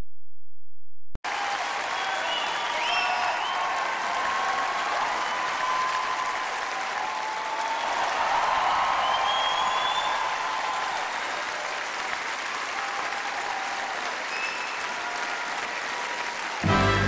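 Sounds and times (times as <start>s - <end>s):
audience applauding: 1.3s - 17.0s
music: 16.6s - 17.0s.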